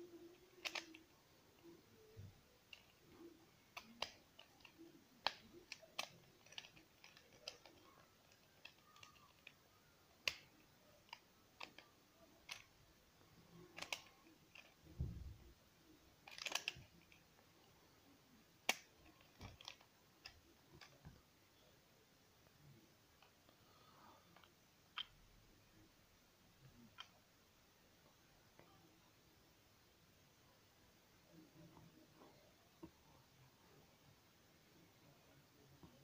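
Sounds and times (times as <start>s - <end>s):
small plastic clicks and snaps: 0.4s - 12.7s, 13.5s - 15.2s, 16.2s - 17.2s, 18.6s - 21.2s, 24.2s - 25.2s.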